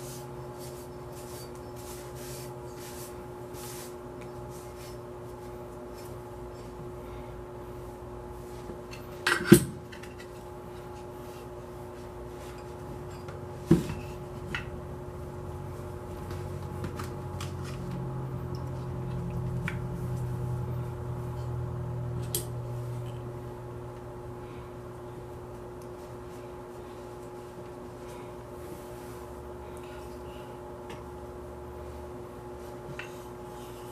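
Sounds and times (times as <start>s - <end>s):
rag wiping: 0.0s - 5.1s
background hum: 0.0s - 33.9s.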